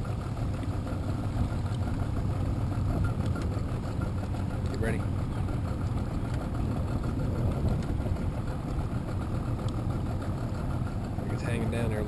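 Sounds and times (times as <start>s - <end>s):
boat motor idling: 0.0s - 12.0s.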